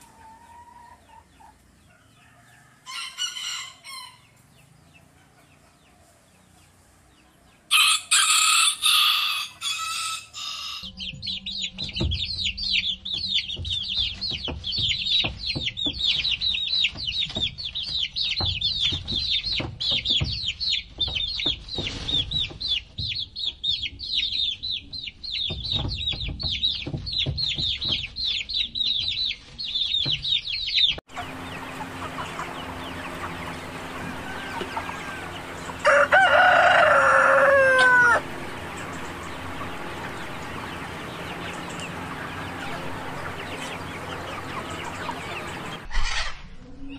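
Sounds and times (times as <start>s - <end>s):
chickens clucking: 0.0s - 46.9s
chicks peeping: 0.0s - 46.9s
rooster crowing: 1.9s - 4.3s, 7.7s - 10.9s, 31.2s - 45.8s.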